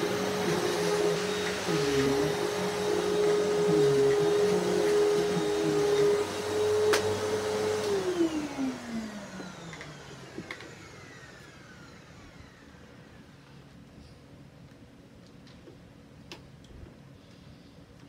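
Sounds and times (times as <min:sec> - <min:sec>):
motor winding down: 0:00.0 - 0:12.8
vacuum cleaner motor running: 0:00.0 - 0:13.3.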